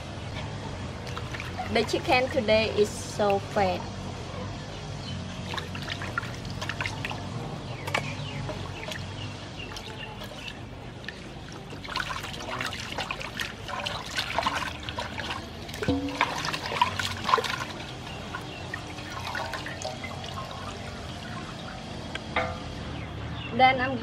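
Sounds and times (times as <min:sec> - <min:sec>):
water sloshing in metal basin: 0:00.4 - 0:03.8, 0:05.4 - 0:22.8
water running off: 0:11.6 - 0:21.6.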